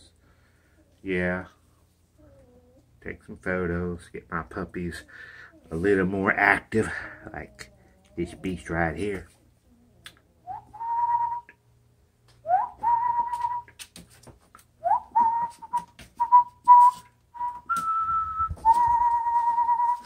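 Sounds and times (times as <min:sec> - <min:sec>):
person whistling: 0:10.5 - 0:11.6, 0:12.5 - 0:13.8, 0:14.8 - 0:20.0.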